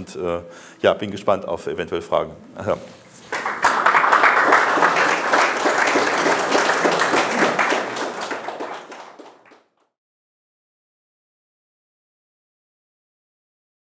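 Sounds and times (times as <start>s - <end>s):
audience applauding: 3.2s - 9.8s.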